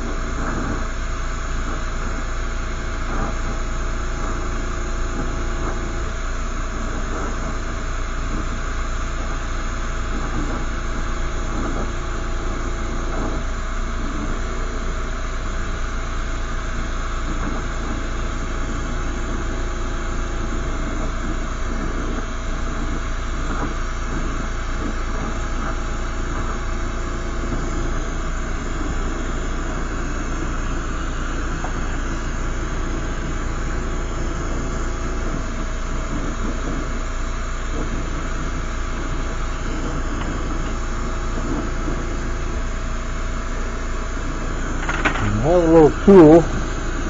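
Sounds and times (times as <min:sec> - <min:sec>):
gas torch rushing: 0:44.2 - 0:47.0.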